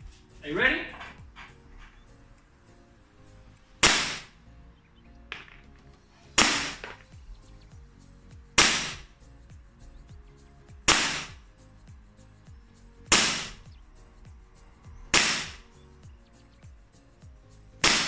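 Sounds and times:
airsoft pistol shots: 0:03.8 - 0:04.3, 0:06.4 - 0:07.0, 0:08.6 - 0:09.1, 0:10.9 - 0:11.4, 0:13.1 - 0:13.6, 0:15.1 - 0:15.6.

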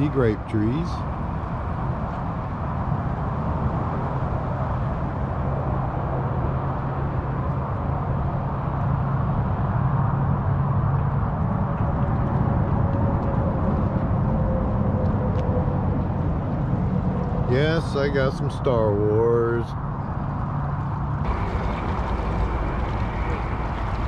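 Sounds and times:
highway traffic noise: 0:00.0 - 0:24.0.

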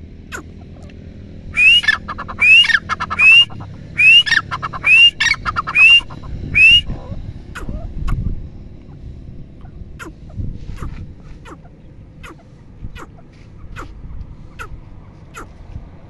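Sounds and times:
bird whistled calls with rattle: 0:01.6 - 0:08.2.

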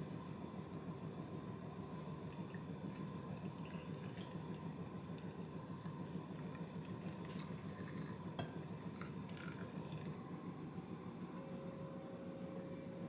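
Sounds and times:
liquid trickling into a jar: 0:02.2 - 0:10.2.

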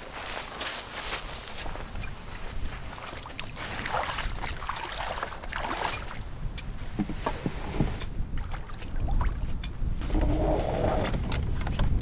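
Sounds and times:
wind rumble on microphone: 0:01.0 - 0:12.0
feet splashing in shallow water: 0:02.5 - 0:06.3, 0:08.4 - 0:09.6.

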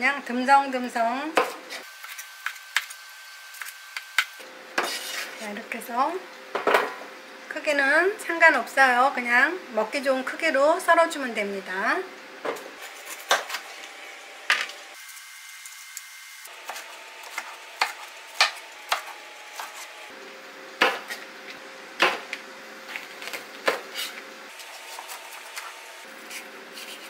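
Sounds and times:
knife chopping on cutting board: 0:01.4 - 0:02.9, 0:16.6 - 0:19.9, 0:20.8 - 0:21.2, 0:22.0 - 0:22.3.

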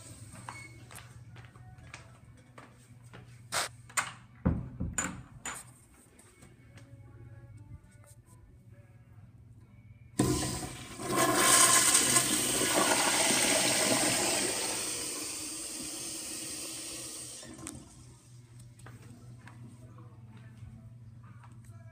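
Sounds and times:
toilet flushing: 0:10.2 - 0:18.1.

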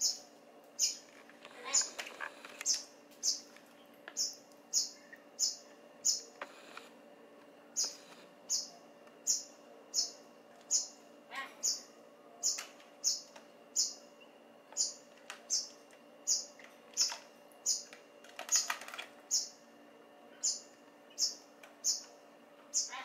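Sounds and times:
beaks pecking plastic tray: 0:00.8 - 0:06.8, 0:14.7 - 0:19.6.

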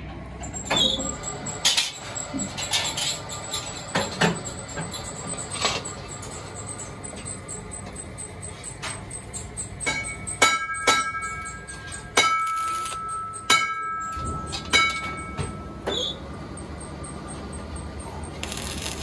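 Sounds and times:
sharp metal knocks ringing: 0:08.7 - 0:16.1
welding arc crackle: 0:12.4 - 0:13.1, 0:18.4 - 0:19.0.

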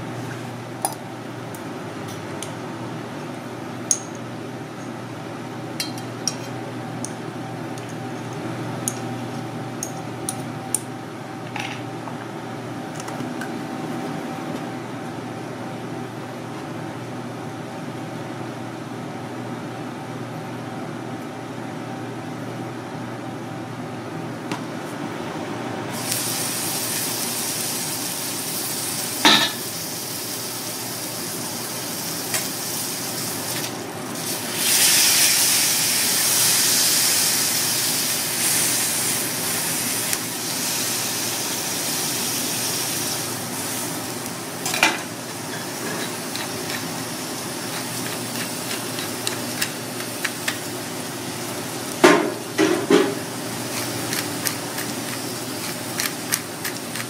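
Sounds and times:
meat sizzling on griddle: 0:26.0 - 0:57.0
spatula clinking and scraping: 0:45.5 - 0:46.9.

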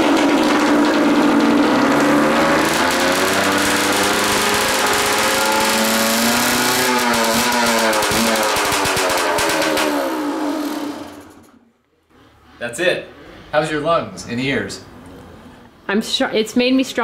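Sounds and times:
two-stroke motorcycle engine revving: 0:00.0 - 0:11.6.

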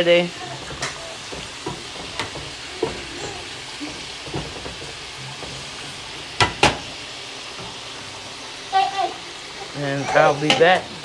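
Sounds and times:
fries sizzling in oil: 0:00.0 - 0:11.0
oil popping: 0:00.4 - 0:08.0.

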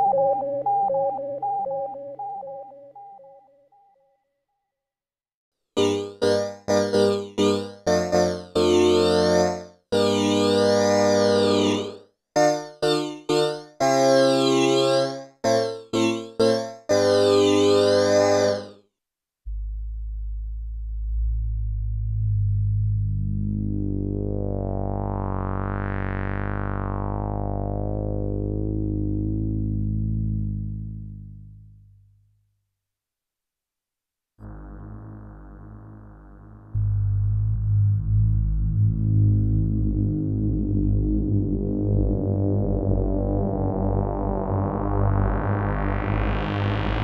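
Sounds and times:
synthesizer sustained low note: 0:19.5 - 0:32.3, 0:34.4 - 0:47.0.

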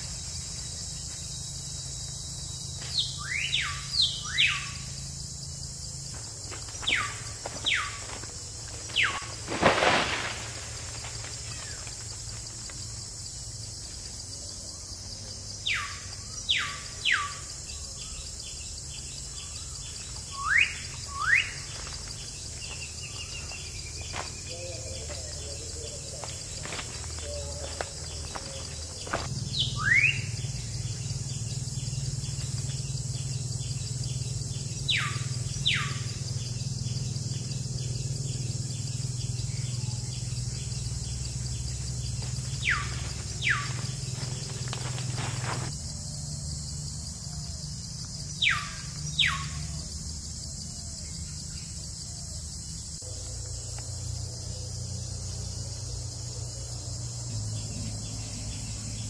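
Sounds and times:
high insect drone: 0:00.0 - 0:59.0
bird whistling calls: 0:29.5 - 0:30.3.

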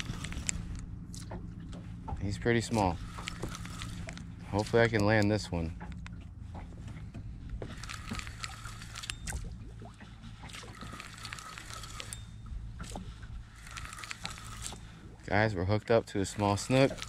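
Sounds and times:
fishing reel whirring and ticking: 0:00.0 - 0:01.4, 0:02.1 - 0:06.2, 0:07.4 - 0:17.0
low rumble: 0:00.0 - 0:17.0.

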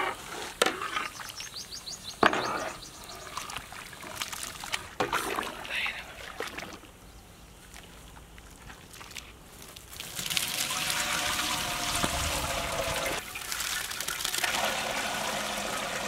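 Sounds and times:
water pouring from a bowl: 0:08.8 - 0:16.0.

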